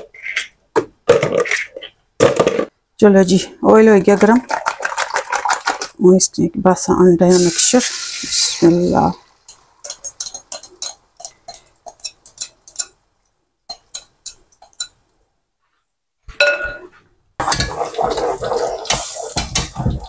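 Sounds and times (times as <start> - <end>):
wooden spoon stirring: 4.1 - 6.0, 9.5 - 15.0, 17.4 - 20.0
egg sizzling in hot oil: 7.3 - 12.9, 17.4 - 20.0.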